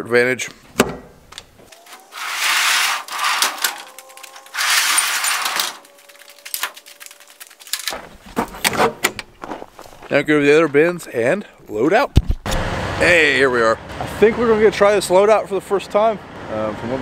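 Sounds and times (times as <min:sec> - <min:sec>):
sliding metal doors scraping: 0:01.6 - 0:07.0
rollers squealing: 0:01.6 - 0:08.3.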